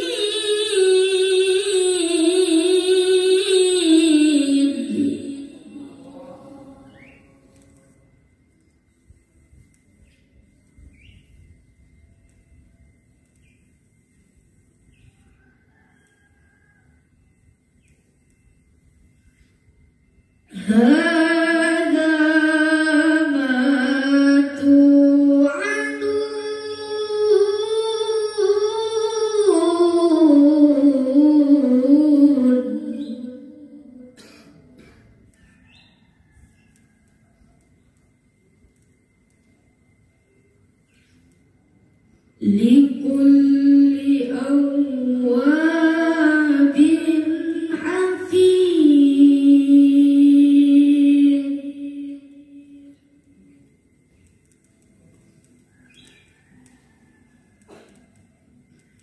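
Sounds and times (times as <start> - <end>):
boy reciting melodically: 0.0 - 7.8, 20.5 - 34.2, 42.4 - 52.6.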